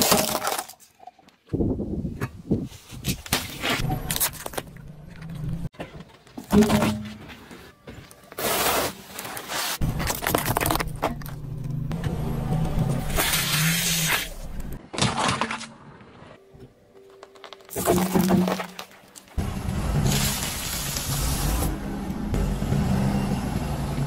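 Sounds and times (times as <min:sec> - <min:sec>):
tyre crushing candies and plastic: 0:00.0 - 0:01.0, 0:08.3 - 0:11.8, 0:17.0 - 0:19.4.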